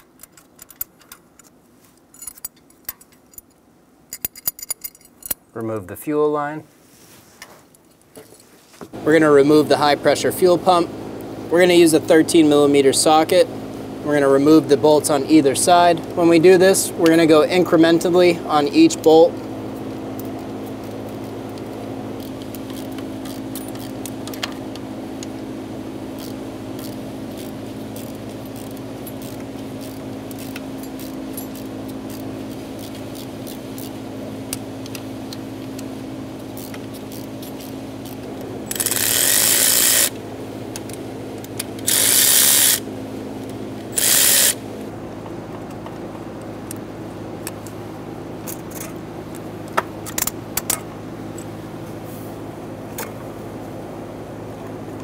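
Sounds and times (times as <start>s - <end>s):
steady low hum: 0.0s - 55.0s
power tool bursts: 38.6s - 40.1s, 41.8s - 42.9s, 43.9s - 44.6s.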